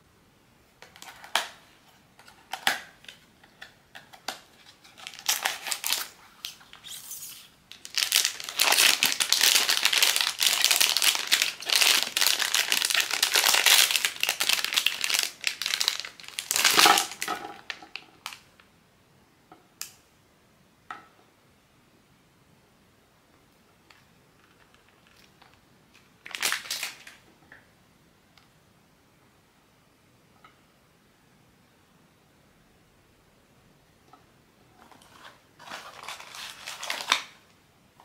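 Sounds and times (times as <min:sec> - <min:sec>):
packaging crinkling: 0:03.9 - 0:18.5, 0:24.4 - 0:27.2, 0:35.1 - 0:37.4.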